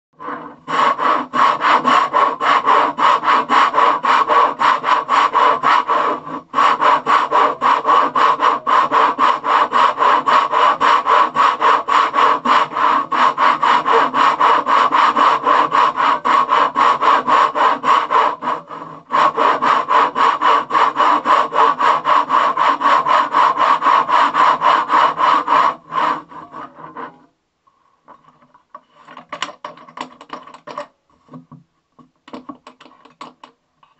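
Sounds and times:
saw cutting wood: 0.1 - 27.3.

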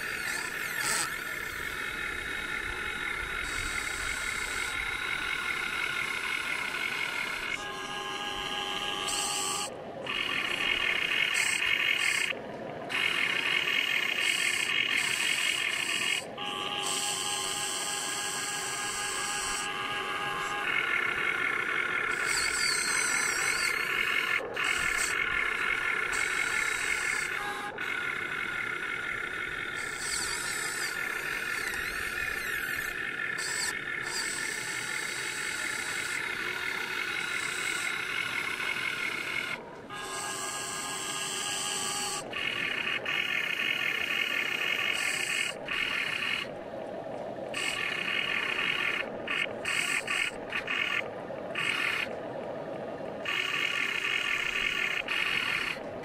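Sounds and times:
electric motor whine: 0.0 - 46.5, 53.2 - 55.9.

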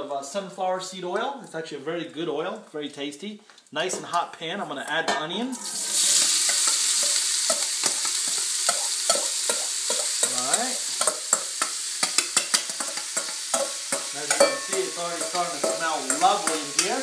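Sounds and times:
onion sizzling in hot oil: 5.5 - 17.0
metal spoon knocking on bowl: 11.0 - 17.0.

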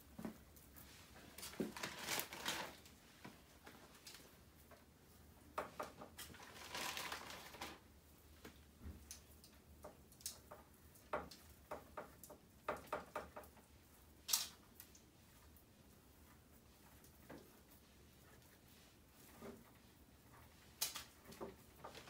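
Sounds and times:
chicken set on wire rack: 5.8 - 7.8.

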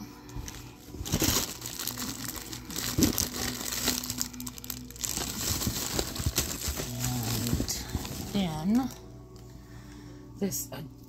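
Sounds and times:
packaging crinkling: 0.5 - 9.0.

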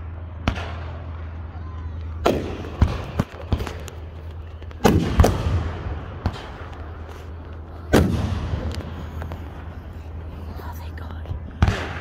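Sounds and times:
fireworks booming and popping: 2.1 - 10.3, 11.4 - 12.0
steady low hum: 2.2 - 12.0.

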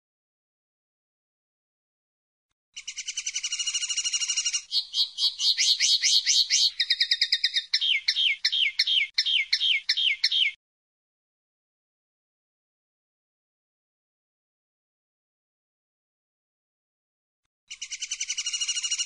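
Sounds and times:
linnet singing: 2.8 - 10.6, 17.7 - 19.0.

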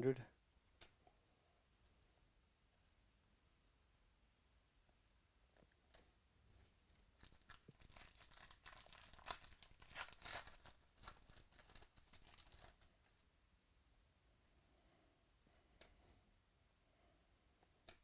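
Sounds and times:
foil wrapper tearing and crinkling: 7.2 - 12.9.

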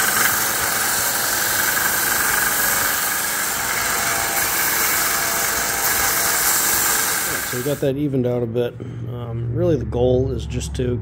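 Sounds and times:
belt sander sanding leather: 0.0 - 7.8.

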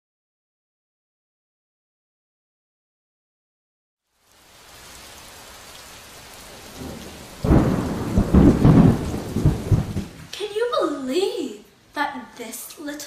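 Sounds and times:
rain hiss: 4.0 - 13.0
rumbling thunder: 6.4 - 10.3.

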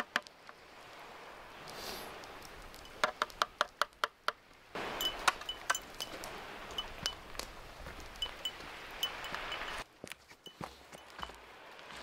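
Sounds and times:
light metallic clinks: 5.0 - 7.2.

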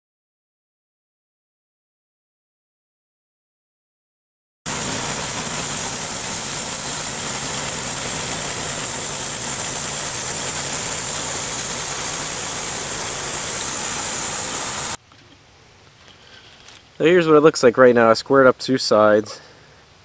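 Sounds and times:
bandsaw sawmill cutting log: 4.7 - 15.0.

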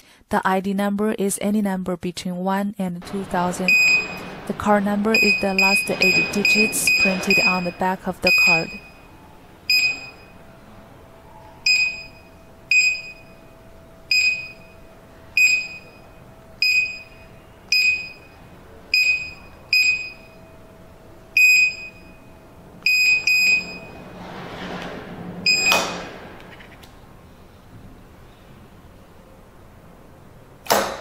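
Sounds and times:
keypad beeps: 3.3 - 4.5, 5.1 - 9.1, 9.7 - 10.4, 11.7 - 13.4, 14.1 - 14.8, 15.4 - 16.0, 16.6 - 20.4, 21.4 - 24.0.

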